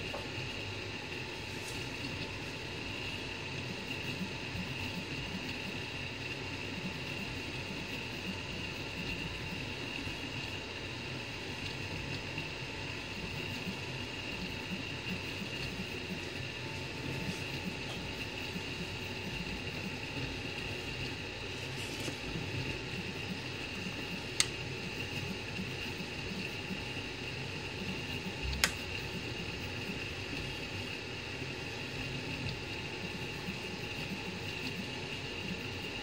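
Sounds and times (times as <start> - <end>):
cooling fan whine: 0.0 - 36.0
motors humming: 0.0 - 36.0.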